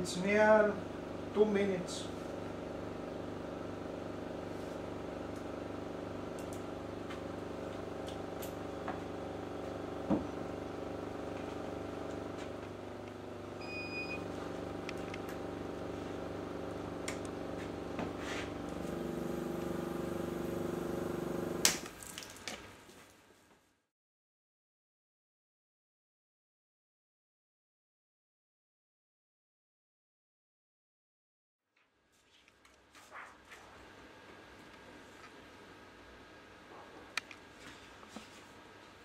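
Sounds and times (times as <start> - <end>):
vacuum pump humming: 0.1 - 21.9.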